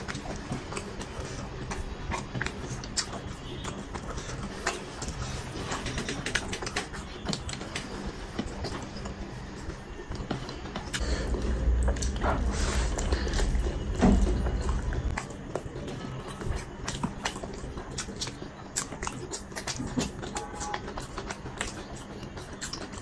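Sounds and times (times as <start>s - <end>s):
lip smacks: 0.0s - 9.2s, 10.1s - 23.0s
wet chewing: 0.0s - 23.0s
low rumble: 11.0s - 15.2s.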